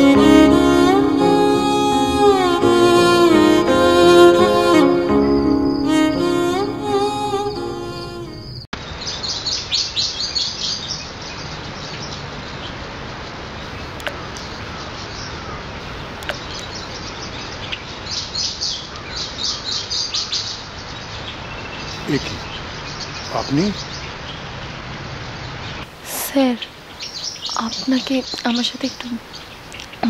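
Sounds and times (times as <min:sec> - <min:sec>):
sad string music: 0:00.0 - 0:08.7
small birds twittering: 0:13.6 - 0:30.0
steady background hiss: 0:19.9 - 0:30.0.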